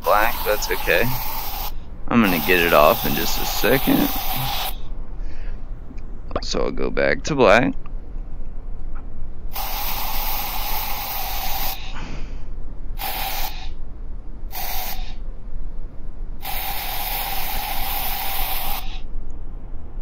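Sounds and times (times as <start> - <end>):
spray-like hissing: 0.0 - 4.9, 9.5 - 12.4, 13.0 - 13.8, 14.5 - 15.2, 16.4 - 19.1.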